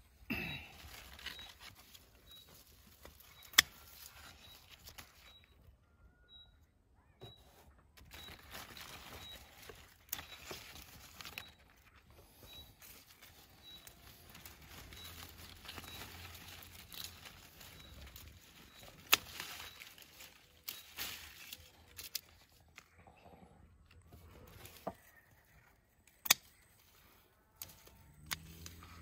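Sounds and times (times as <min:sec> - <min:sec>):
leaves rustling and crinkling: 0:00.1 - 0:05.6, 0:07.5 - 0:23.0, 0:24.1 - 0:25.7.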